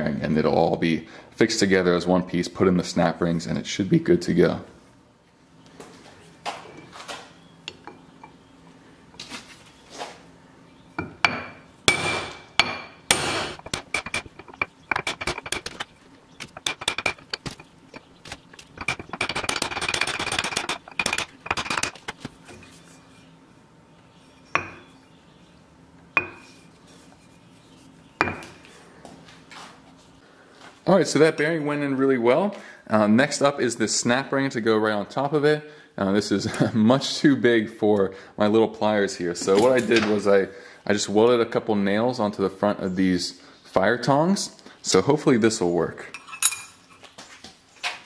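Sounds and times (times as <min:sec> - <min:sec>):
hammer tapping metal: 0:11.0 - 0:15.8, 0:16.4 - 0:18.1, 0:24.6 - 0:24.9, 0:26.2 - 0:26.5.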